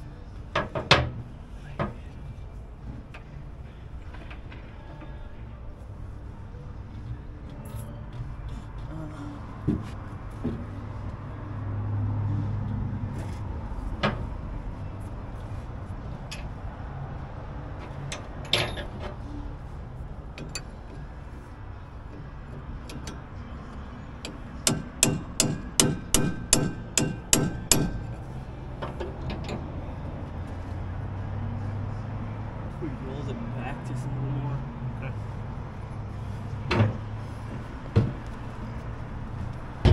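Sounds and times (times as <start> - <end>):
tools clanking: 17.8 - 19.4, 20.3 - 21.1, 22.1 - 29.8, 39.4 - 39.9
hammer striking metal: 24.2 - 28.1.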